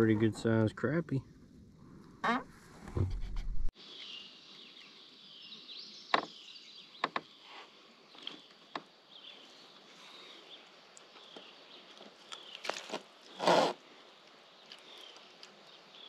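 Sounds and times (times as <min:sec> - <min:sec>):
steady outdoor hiss: 0:00.0 - 0:03.0, 0:03.7 - 0:16.0
birds chirping: 0:03.8 - 0:16.0.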